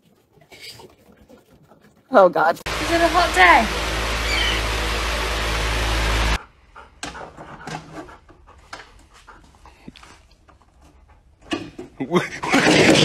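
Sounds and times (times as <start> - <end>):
dog panting: 6.4 - 11.4.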